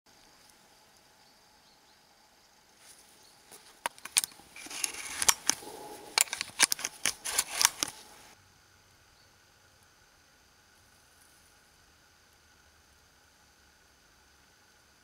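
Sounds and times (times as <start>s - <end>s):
handling rustle: 2.8s - 8.4s
shotgun shells clicking in: 3.9s - 8.0s.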